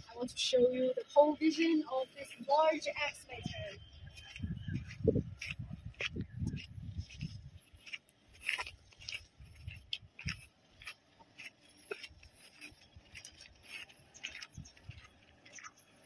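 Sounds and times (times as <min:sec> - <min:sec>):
footsteps crunching on gravel: 0:01.6 - 0:16.0
wind rumble on microphone: 0:03.0 - 0:10.5, 0:12.8 - 0:15.2.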